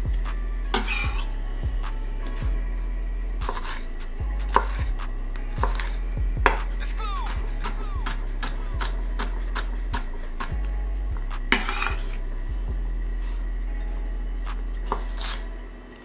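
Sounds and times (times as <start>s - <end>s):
background music with bass line: 0.0s - 16.0s
knife chopping on wooden board: 5.6s - 6.6s
knife scraping across board: 5.6s - 6.6s, 11.5s - 12.1s, 14.9s - 15.4s.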